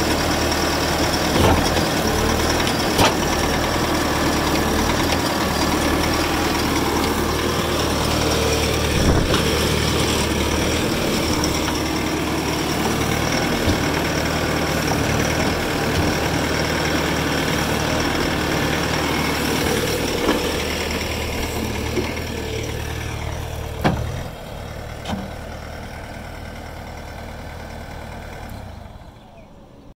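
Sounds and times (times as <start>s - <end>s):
diesel engine running: 0.0s - 29.9s
sharp metal knocks and clunks: 2.6s - 3.4s, 23.8s - 24.2s.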